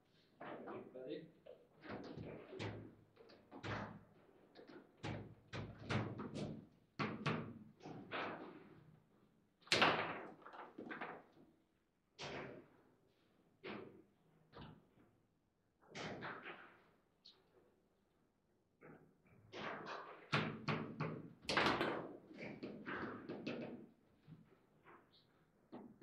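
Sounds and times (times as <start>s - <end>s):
table football knocks and clacks: 1.8s - 8.7s, 19.6s - 24.0s.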